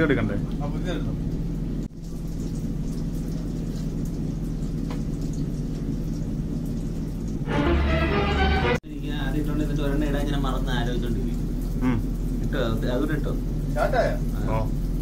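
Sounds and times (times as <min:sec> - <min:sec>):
food sizzling in hot oil: 0:09.6 - 0:15.0.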